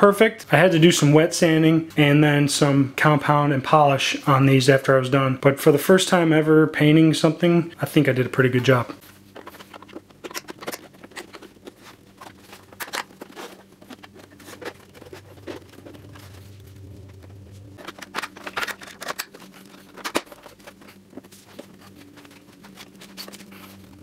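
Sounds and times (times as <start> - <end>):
hard plastic clicking and rattling: 9.3 - 16.1, 17.8 - 21.6.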